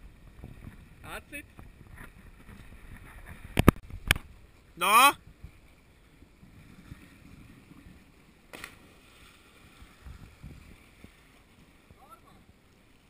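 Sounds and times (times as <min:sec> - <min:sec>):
lapping seawater: 0:00.0 - 0:13.0
wind rumbling on microphone: 0:00.0 - 0:13.0
person splashing into sea: 0:08.5 - 0:09.6.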